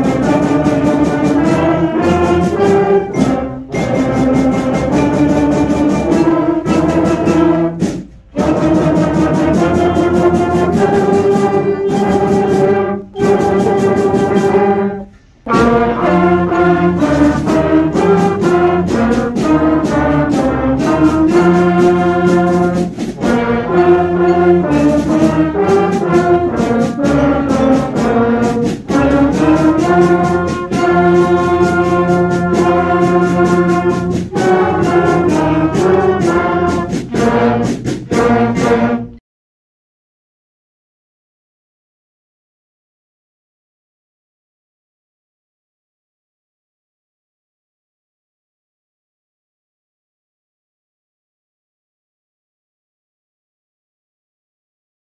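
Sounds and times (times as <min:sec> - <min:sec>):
concert band playing chords: 0:00.0 - 0:39.2.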